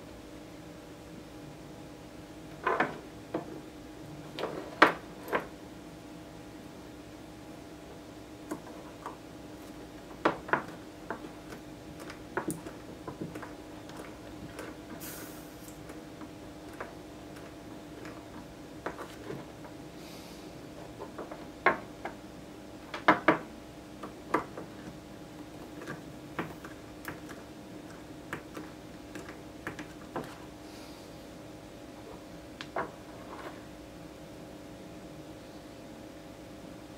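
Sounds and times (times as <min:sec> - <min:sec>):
small clicks and taps: 0:10.2 - 0:14.8.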